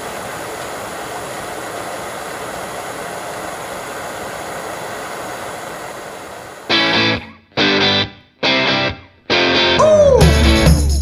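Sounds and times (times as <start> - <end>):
flame burning: 0.0 - 6.8.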